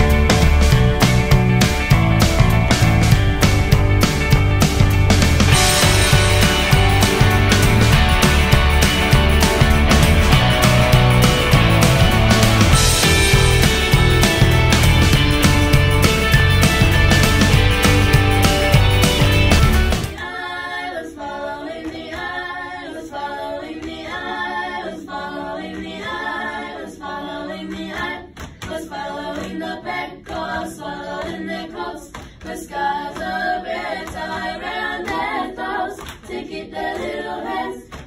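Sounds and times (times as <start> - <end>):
backing music: 0.0 - 20.2
girls singing a cappella harmony: 20.2 - 38.0.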